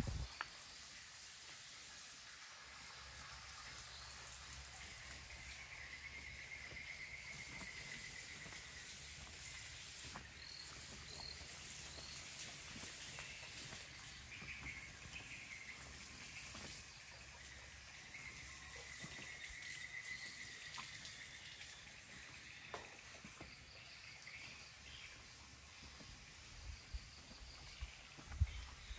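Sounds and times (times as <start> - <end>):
insect trill: 2.8 - 24.8.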